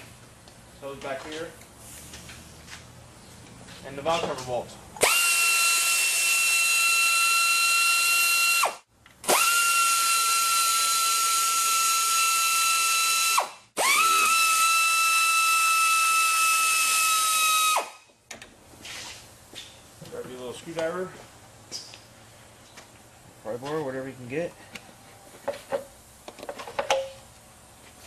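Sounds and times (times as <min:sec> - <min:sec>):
air ratchet whining: 0:05.0 - 0:18.0.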